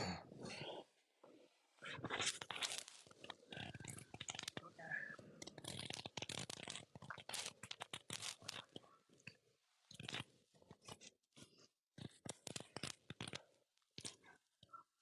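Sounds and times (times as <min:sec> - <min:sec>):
dense crackling and clicking: 0:01.9 - 0:11.1.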